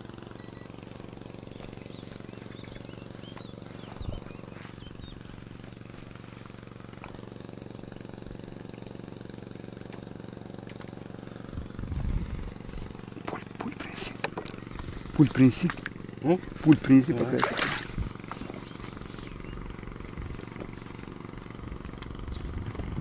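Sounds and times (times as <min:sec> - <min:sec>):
low mechanical hum: 0:00.0 - 0:23.0
faint bird chirps: 0:01.4 - 0:05.9.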